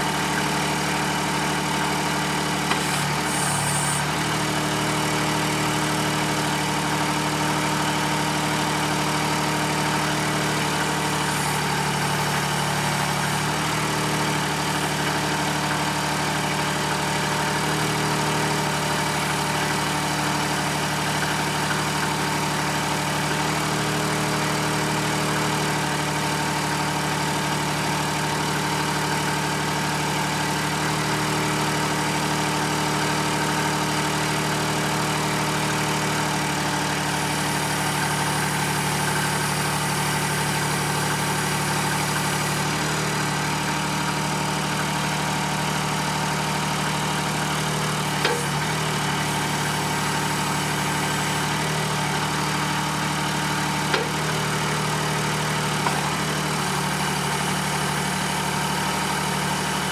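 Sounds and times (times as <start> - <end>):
skid steer engine running: 0.0 - 59.9
hydraulic backhoe moving: 2.2 - 4.8, 47.8 - 58.4.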